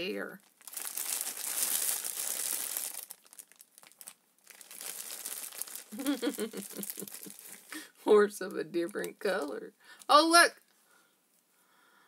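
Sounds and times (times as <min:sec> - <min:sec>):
plastic bag crinkling: 0:00.4 - 0:07.8.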